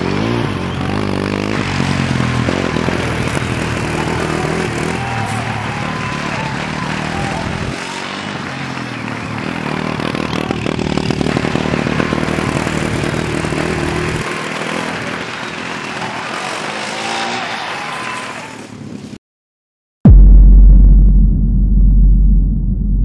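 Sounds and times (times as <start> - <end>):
race car engine: 0.0 - 18.8.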